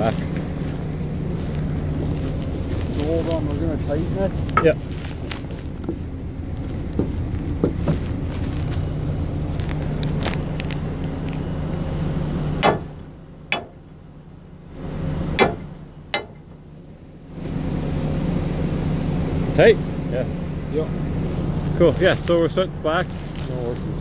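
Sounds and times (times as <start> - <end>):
engine droning: 0.0 - 24.0
sharp metal clanks: 12.6 - 13.9, 15.4 - 16.6.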